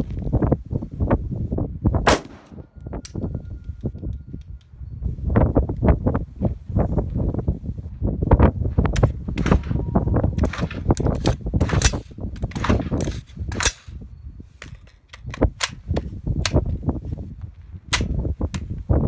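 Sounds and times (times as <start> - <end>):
wind rumble on microphone: 0.0 - 19.0
gunshots: 2.0 - 2.7, 11.6 - 13.9.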